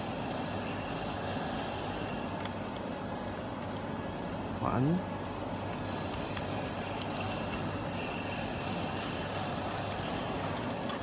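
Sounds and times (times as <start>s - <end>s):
steady background hum: 0.0s - 11.0s
screwdriver metallic clicks: 9.9s - 11.0s.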